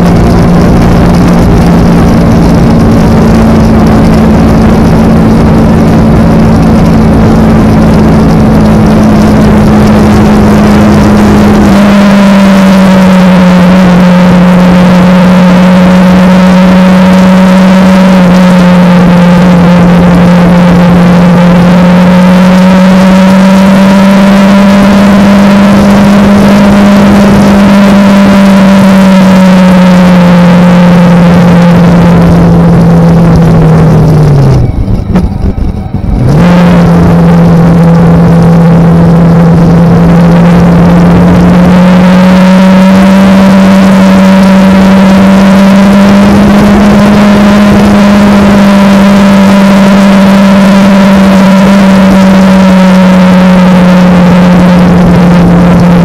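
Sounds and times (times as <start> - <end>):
heavy wind noise: 0.0 - 12.8, 31.7 - 42.8
motorcycle engine running: 0.0 - 56.0.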